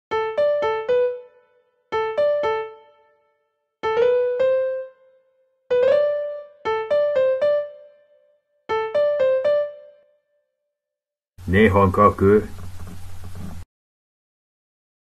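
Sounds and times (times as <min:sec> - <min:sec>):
sampled piano notes: 0:00.1 - 0:10.2.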